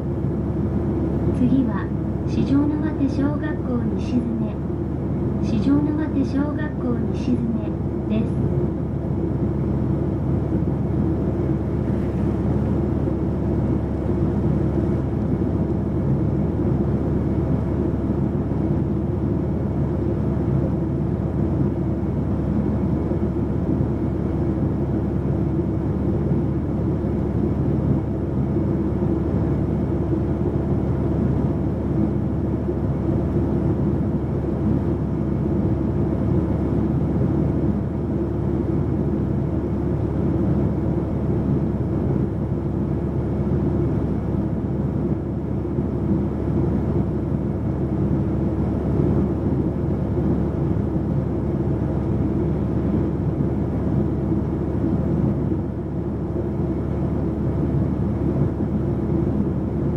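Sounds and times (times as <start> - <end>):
bus engine hum: 0.0 - 24.4.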